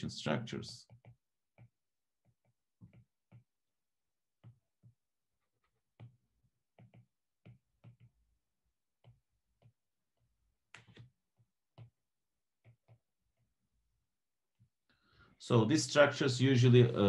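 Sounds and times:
stylus tapping on glass screen: 6.0 - 8.1, 9.0 - 9.8.

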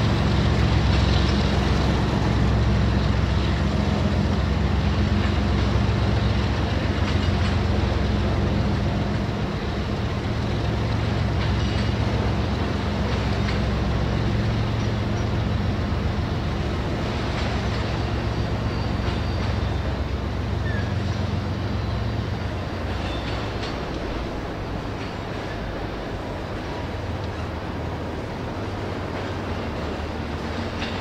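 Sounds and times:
train wheels rumbling on rails: 0.0 - 31.0
faint high squeals: 20.6 - 22.1.

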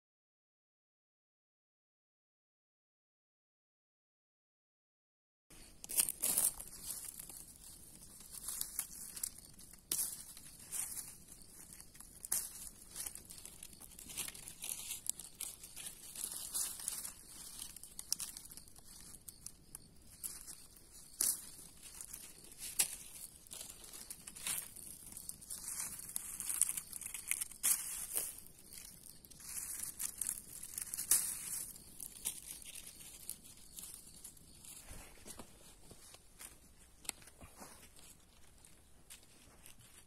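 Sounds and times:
palm fronds tearing and rustling: 22.0 - 33.2.

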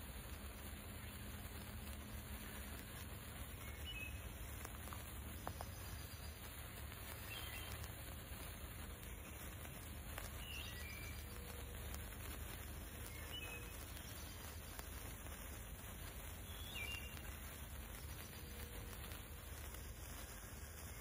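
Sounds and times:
low rumble and hiss: 0.0 - 21.0
distant bird chirps: 8.9 - 15.0, 16.2 - 21.0.

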